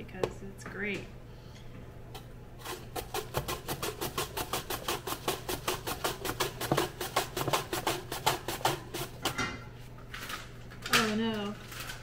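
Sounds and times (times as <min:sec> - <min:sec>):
apple scraping on slicer: 0:02.6 - 0:09.4.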